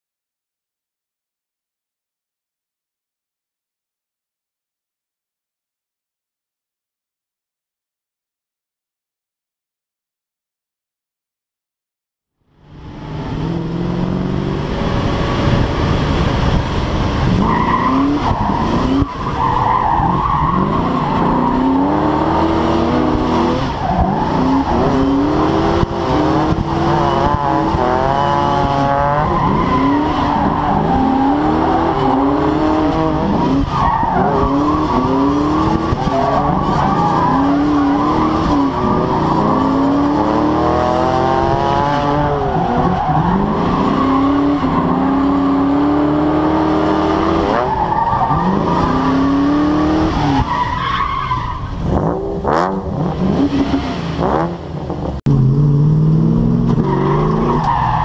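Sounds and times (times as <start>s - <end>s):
car engine revving: 12.5s - 58.0s.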